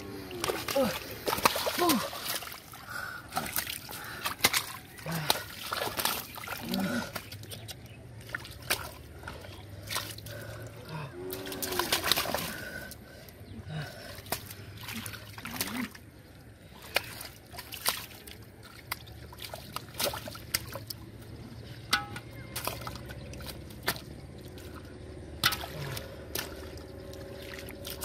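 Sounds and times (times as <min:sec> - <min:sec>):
muddy water splashing: 0:00.0 - 0:28.0.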